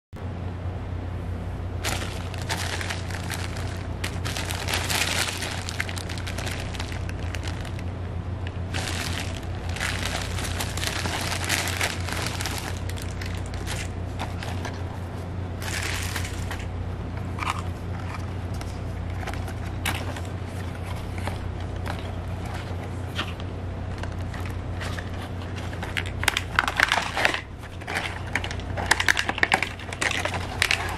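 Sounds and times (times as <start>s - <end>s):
steady low hum: 0.2s - 30.9s
cardboard box being handled: 1.8s - 7.9s, 8.7s - 14.9s
plastic mailer bag crinkling: 1.8s - 30.9s.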